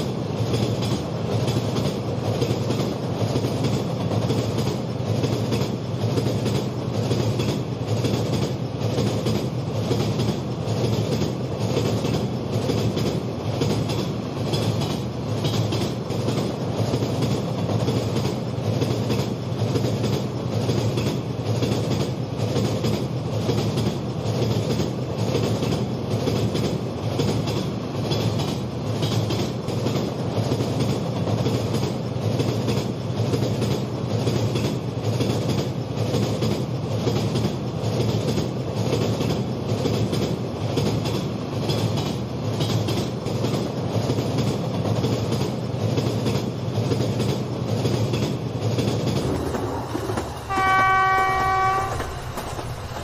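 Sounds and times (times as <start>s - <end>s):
low rumble of model train: 0.0s - 53.0s
model train wheels clickety-clack: 0.0s - 53.0s.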